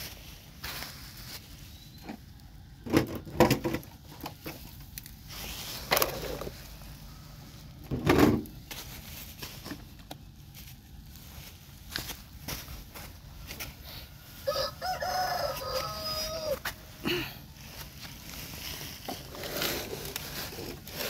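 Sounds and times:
toy trucks knocking and scraping sand: 0:02.8 - 0:06.8, 0:18.6 - 0:21.0.

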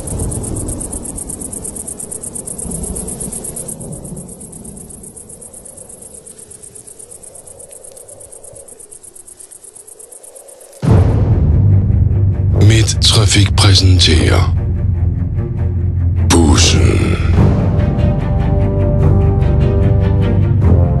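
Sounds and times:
crickets chirping: 0:00.0 - 0:11.1.

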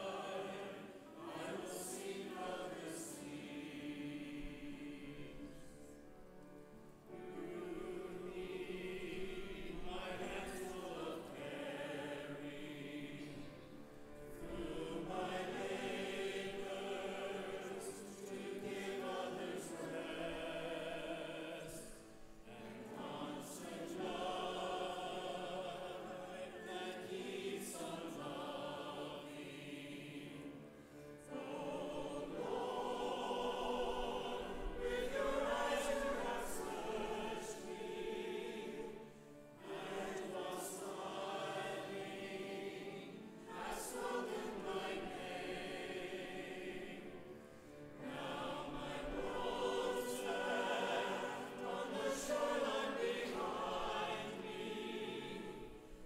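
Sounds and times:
congregation singing a hymn: 0:00.0 - 0:56.0.

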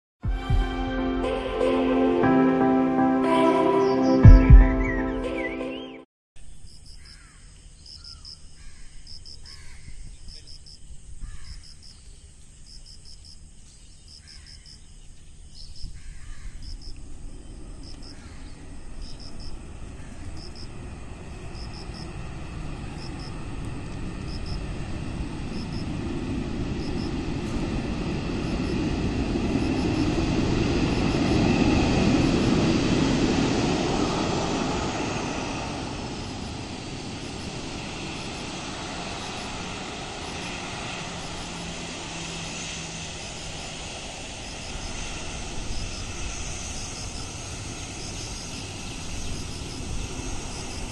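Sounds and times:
high jet whine falling in pitch: 0:00.2 - 0:05.7, 0:16.8 - 0:50.9
jet airliner landing: 0:00.2 - 0:05.7, 0:16.6 - 0:50.9.

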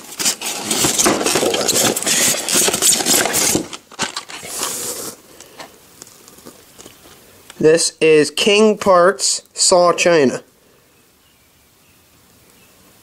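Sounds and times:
styrofoam and cardboard crackling: 0:00.0 - 0:07.1
rustle: 0:00.0 - 0:13.0.

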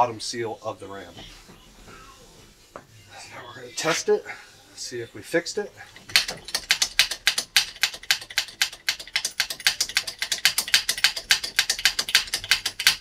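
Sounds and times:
air-driven pump chattering: 0:05.8 - 0:13.0.

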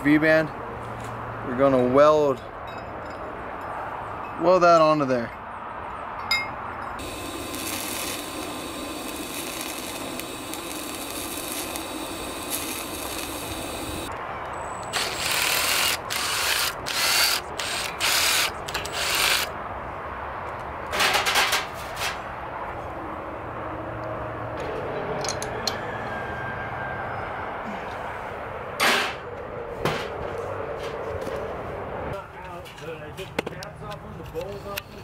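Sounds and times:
welder arc buzzing and hissing: 0:07.0 - 0:14.1
impact driver bursts: 0:14.9 - 0:19.5.

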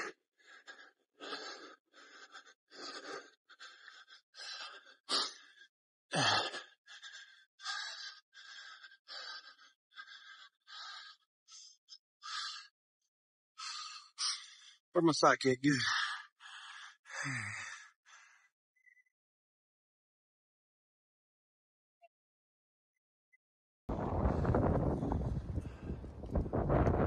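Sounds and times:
person breathing hard: 0:00.0 - 0:12.7, 0:13.6 - 0:14.8, 0:15.8 - 0:18.5, 0:25.6 - 0:26.2.

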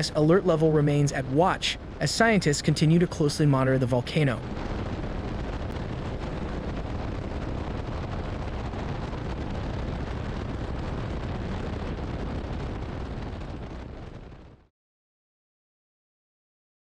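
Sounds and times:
helicopter roar from on board: 0:00.0 - 0:14.6.

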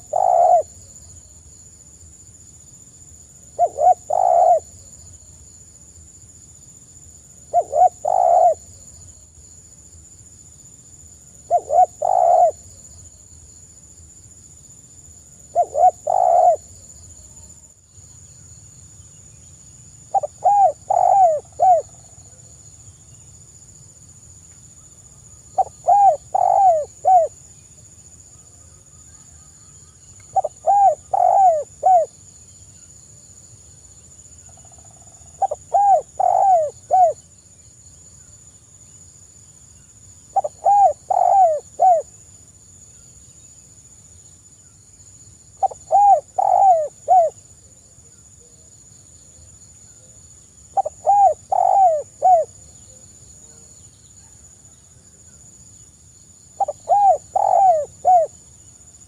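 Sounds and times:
dove cooing: 0:00.0 - 0:00.8, 0:03.6 - 0:04.7, 0:07.5 - 0:08.7, 0:11.5 - 0:12.7, 0:15.5 - 0:16.7, 0:20.1 - 0:22.0, 0:25.6 - 0:27.3, 0:30.3 - 0:32.1, 0:35.4 - 0:37.2, 0:40.3 - 0:42.1, 0:45.6 - 0:47.4, 0:50.8 - 0:52.5, 0:56.6 - 0:58.4.

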